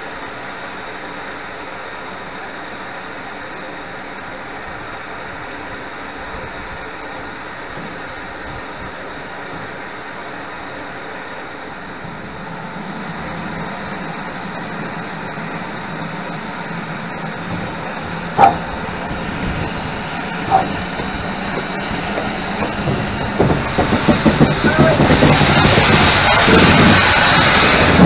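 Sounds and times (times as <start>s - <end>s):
high steam hiss: 0.0s - 28.0s
steam locomotive hiss and rumble: 0.0s - 28.0s.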